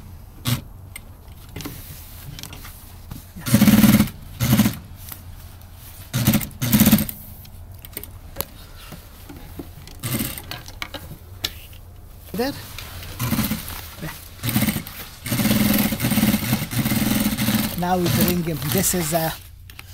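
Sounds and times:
sewing machine stitching: 3.4s - 4.8s, 6.1s - 7.2s, 10.0s - 10.6s, 13.2s - 19.3s.

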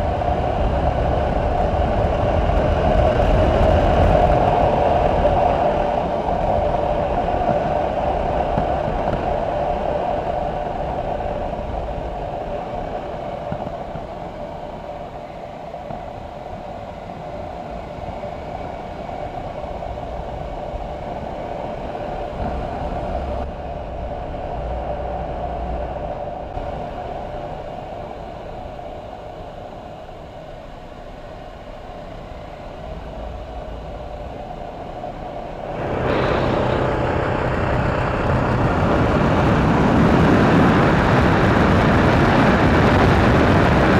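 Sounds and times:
road noise: 0.0s - 43.9s
wind rushing: 32.9s - 43.9s
motorcycle engine running: 35.7s - 41.1s.

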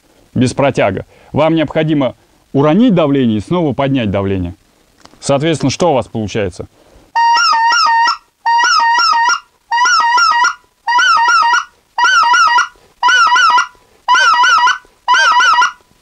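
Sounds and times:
goose call honking notes: 7.2s - 15.9s.

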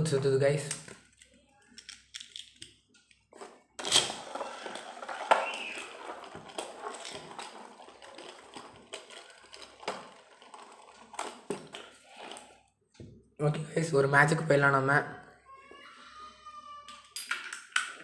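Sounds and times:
small plastic clicks: 0.6s - 4.0s
spinning top rattling scrape: 3.8s - 12.4s.

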